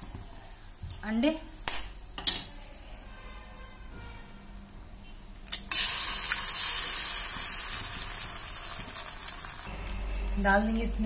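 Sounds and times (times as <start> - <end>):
egg sizzling in hot oil: 5.5 - 10.4.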